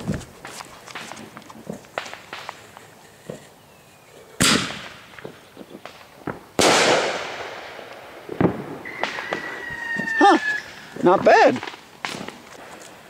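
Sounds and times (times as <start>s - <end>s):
firework launch bang: 4.4s - 5.3s, 5.9s - 10.9s
firework shell bursting with hiss: 4.4s - 11.0s.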